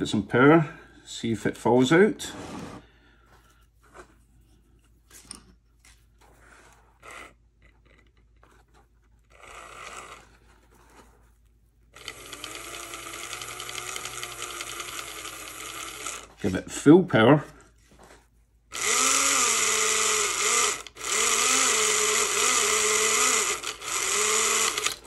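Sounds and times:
model train motor whirring: 12.0 - 16.3, 18.7 - 25.0.

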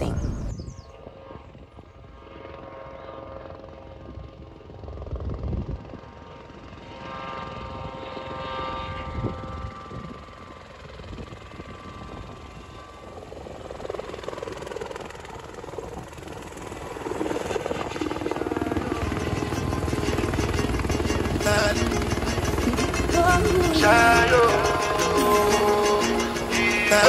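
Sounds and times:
helicopter turbine and rotor: 0.0 - 27.0
rotor blades beating: 13.9 - 27.0.

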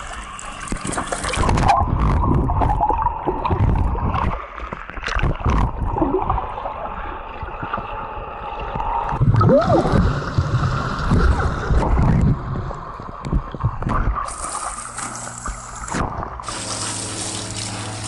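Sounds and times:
muffled underwater sloshing: 0.0 - 18.0.

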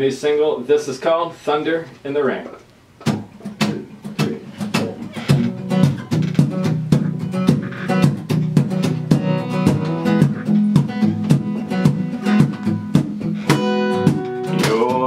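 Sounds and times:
acoustic guitar strumming: 3.0 - 15.0.

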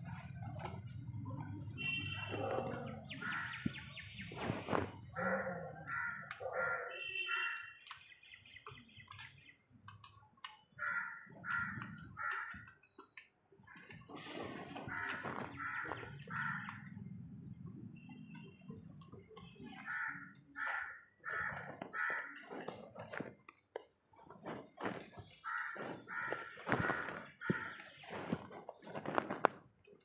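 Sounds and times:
crows cawing: 3.2 - 3.6, 5.2 - 7.6, 10.7 - 12.8, 14.8 - 16.9, 19.8 - 22.5, 25.4 - 28.0.

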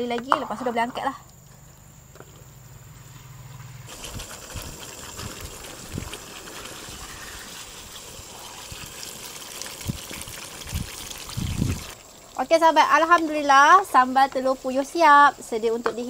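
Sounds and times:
sauce bubbling and sizzling: 3.9 - 15.6.

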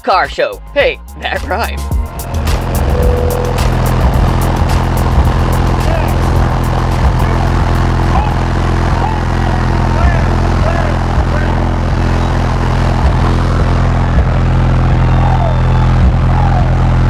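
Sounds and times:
engine running: 1.8 - 17.0.

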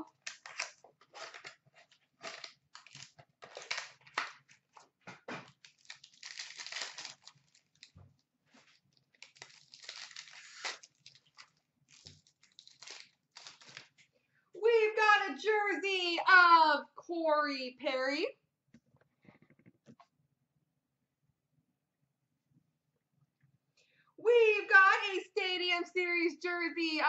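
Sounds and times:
foil wrappers crinkling and tearing: 0.0 - 8.0, 8.6 - 14.0.

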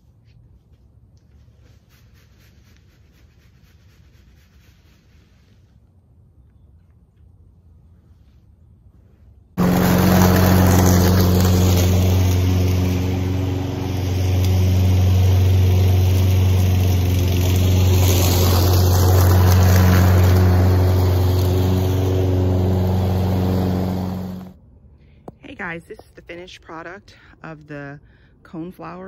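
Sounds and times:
lawn mower engine running: 9.6 - 24.6.

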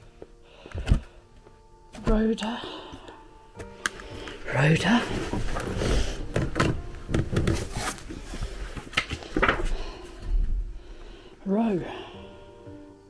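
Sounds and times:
paper and cardboard handling: 7.4 - 9.5.

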